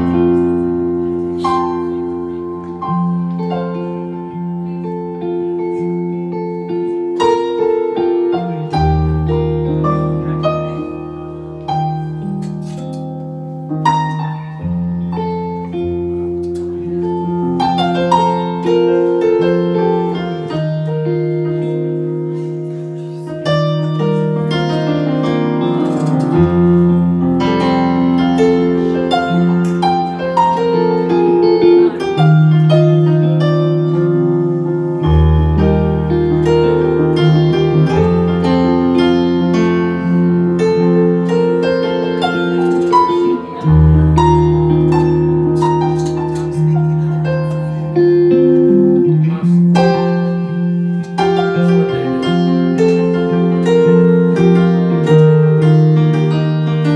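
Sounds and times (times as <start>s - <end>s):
electric guitar: 0.0s - 56.9s
electric keyboard: 0.0s - 56.9s.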